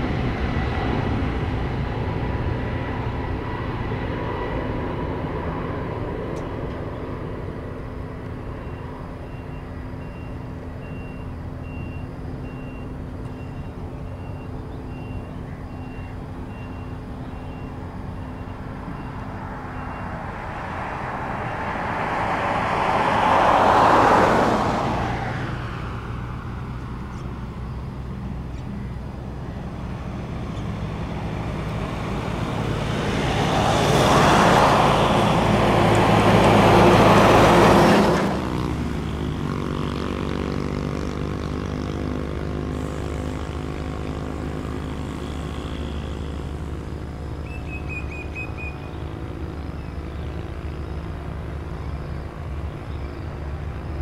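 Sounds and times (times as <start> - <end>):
vehicle passing close by: 0.0 - 9.2, 16.3 - 54.0
traffic engine hum: 0.0 - 54.0
reversing alarm beeps: 8.6 - 20.2.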